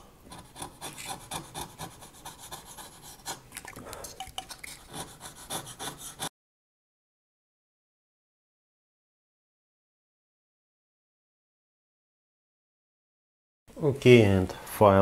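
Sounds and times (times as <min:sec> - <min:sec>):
knife blade scraping wood: 0:00.3 - 0:06.3.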